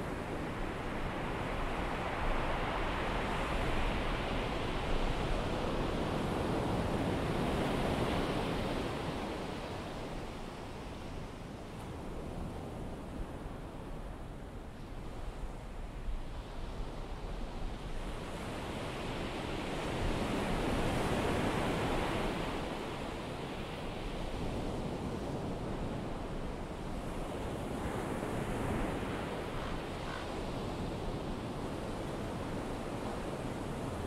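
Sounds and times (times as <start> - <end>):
ocean surf washing on beach: 16.1 - 34.0.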